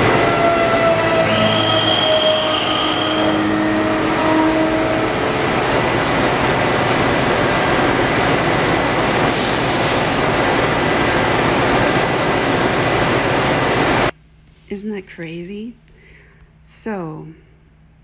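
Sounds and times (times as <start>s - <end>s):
whining tones: 0.0s - 5.6s
steady rushing roar: 0.0s - 14.1s.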